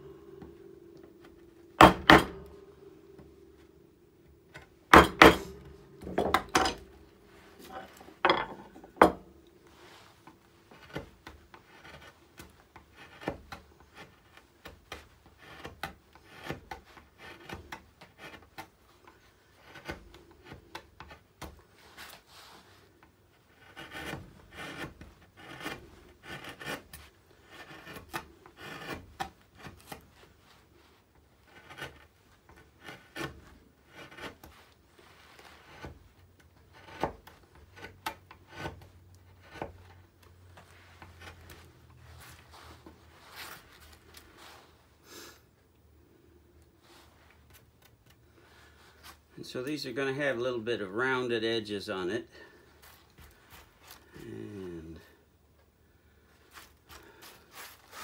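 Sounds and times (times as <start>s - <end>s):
gouge scraping wood: 9.7s - 44.8s, 56.4s - 58.0s.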